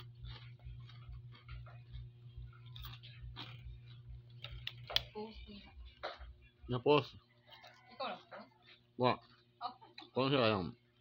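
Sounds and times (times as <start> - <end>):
crunchy snack being chewed: 0.0 - 5.2, 7.4 - 10.2
steady low hum: 0.0 - 11.0.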